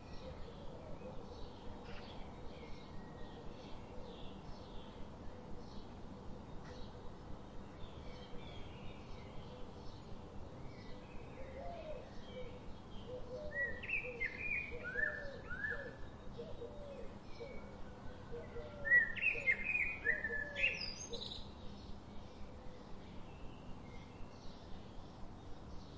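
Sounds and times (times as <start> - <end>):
faint outdoor background: 0.0 - 25.9
birds chirping and calling: 18.3 - 21.6.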